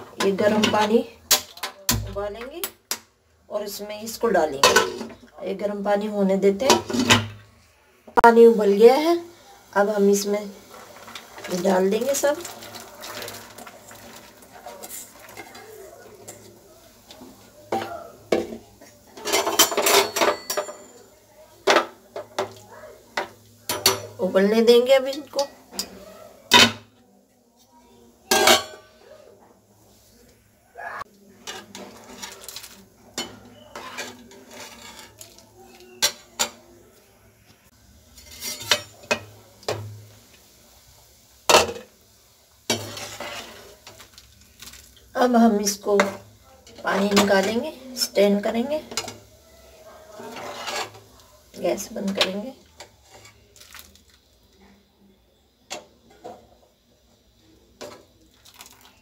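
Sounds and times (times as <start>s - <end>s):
steel spoon clinking on pan: 19.2s - 21.1s
cookware knocking and clinking: 19.2s - 22.6s, 28.3s - 28.8s.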